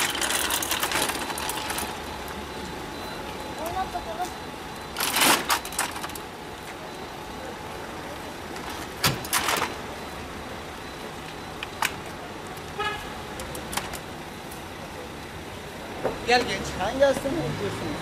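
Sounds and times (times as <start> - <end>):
street traffic: 0.0 - 18.0
car horn toot: 12.8 - 13.2.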